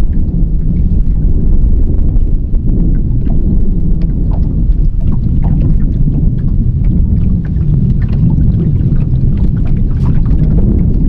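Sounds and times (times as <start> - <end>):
loud steady low rumble: 0.0 - 11.0
wind buffeting microphone: 0.0 - 11.0
small ticks and splashes: 2.9 - 11.0.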